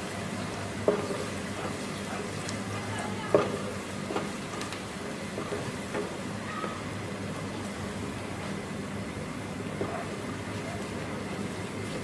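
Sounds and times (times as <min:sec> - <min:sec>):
onion sizzling in oil: 0:00.0 - 0:12.0
spatula stirring: 0:00.3 - 0:04.6.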